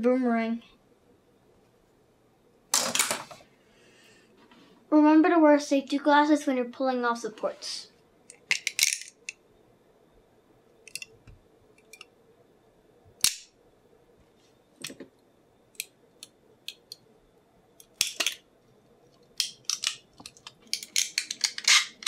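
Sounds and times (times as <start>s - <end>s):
plastic snapping with pliers: 13.2s - 13.5s, 19.4s - 21.9s.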